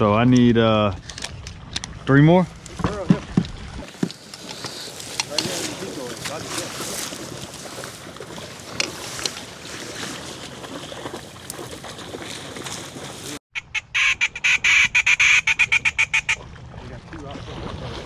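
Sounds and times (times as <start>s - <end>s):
wind: 0.0s - 18.0s
duck call quacking: 13.6s - 16.4s.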